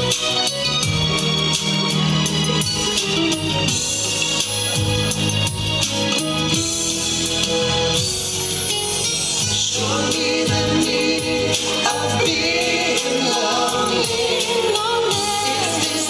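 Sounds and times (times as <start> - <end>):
dance song with steady beat: 0.0 - 16.0
person singing: 9.6 - 16.0.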